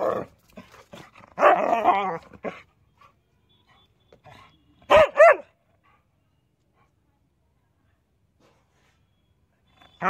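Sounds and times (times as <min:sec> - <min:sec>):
dog barking: 0:04.9 - 0:05.6.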